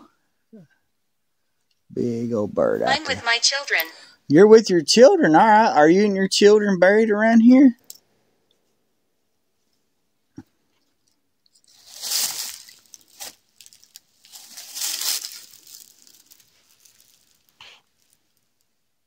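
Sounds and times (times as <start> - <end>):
dry leaves rustling and crunching: 11.7 - 18.2.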